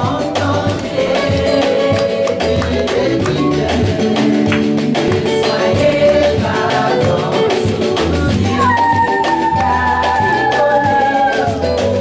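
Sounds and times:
instrumental accompaniment with beat: 0.0s - 12.0s
woman singing into microphone: 5.3s - 12.0s.

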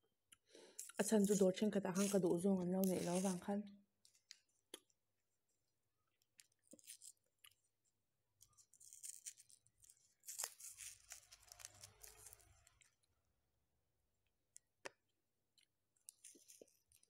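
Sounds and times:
paper wrapper crinkling and tearing: 0.8s - 3.5s, 6.4s - 7.7s, 8.4s - 12.9s, 16.1s - 17.0s.

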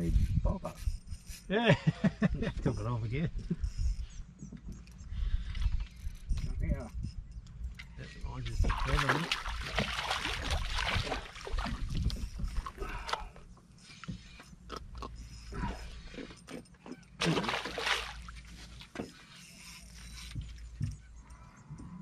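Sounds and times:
fish splashing at water surface: 8.7s - 12.0s, 17.2s - 18.5s
knocks and clatter on boat: 20.3s - 21.2s.

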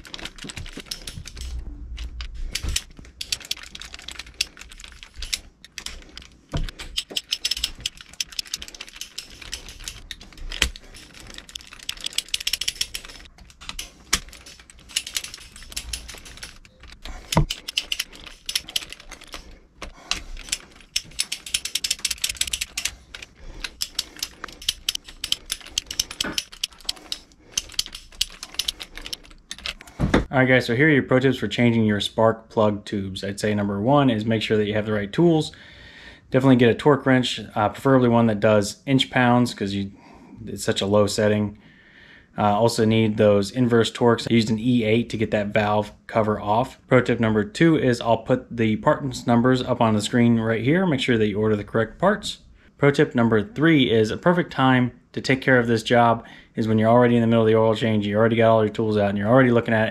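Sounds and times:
torque wrench ratchet clicking: 6.9s - 10.1s, 23.6s - 29.2s.

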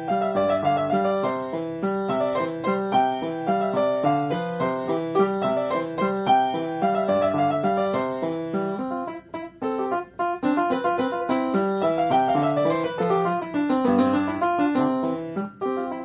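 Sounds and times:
solo piano piece: 0.0s - 16.0s.

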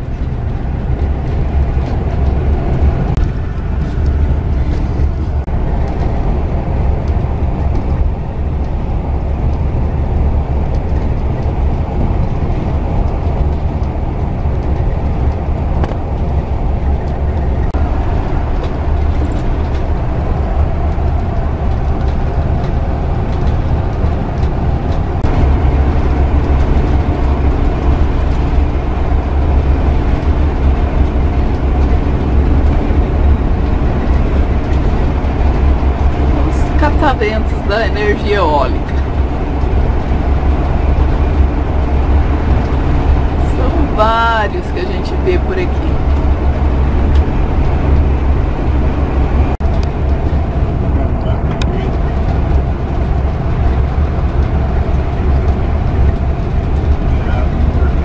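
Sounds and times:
vehicle engine rumble: 0.0s - 58.0s.

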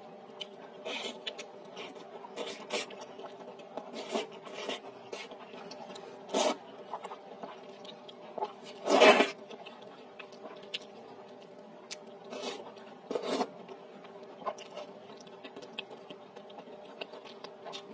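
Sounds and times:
chewing with wet smacks: 0.3s - 8.7s, 9.3s - 17.9s
slurping noodle soup: 6.3s - 6.6s, 8.4s - 9.4s, 12.3s - 13.5s.

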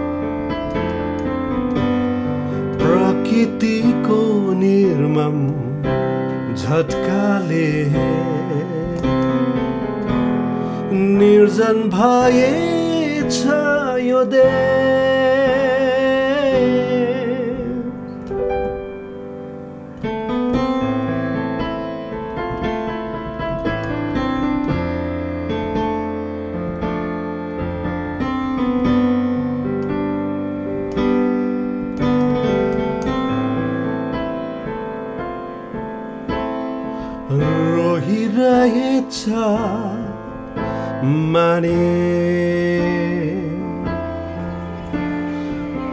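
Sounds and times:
instrumental chords and melody: 0.0s - 45.9s
person singing prayer song: 10.9s - 18.0s.

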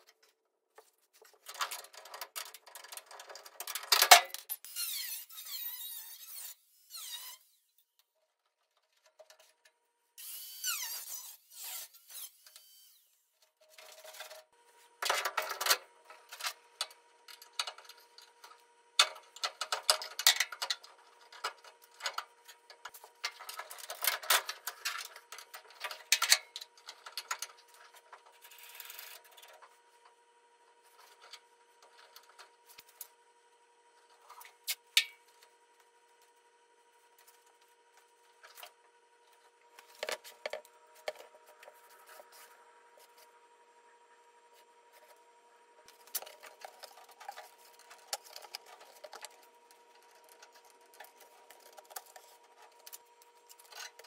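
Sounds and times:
metal parts clicking and scraping: 45.9s - 54.0s.

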